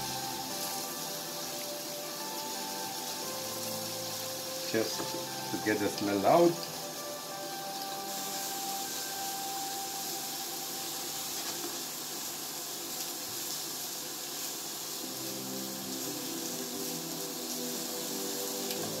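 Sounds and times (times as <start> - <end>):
onion and garlic simmering hiss: 0.0 - 19.0.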